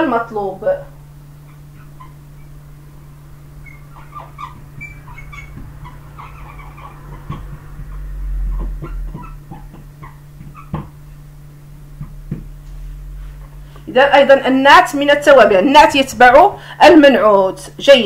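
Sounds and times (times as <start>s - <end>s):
low electrical hum: 0.0s - 18.0s
marker squeaking on whiteboard: 3.6s - 11.2s.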